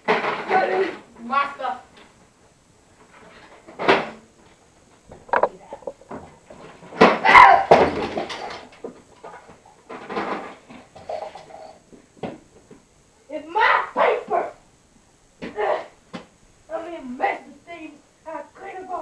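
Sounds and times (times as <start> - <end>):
plastic toy knocking on table: 5.3 - 6.0.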